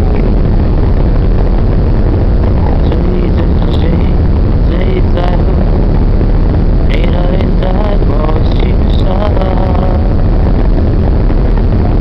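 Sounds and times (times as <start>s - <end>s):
churning wake: 0.0s - 12.0s
ship engines rumbling: 0.0s - 12.0s.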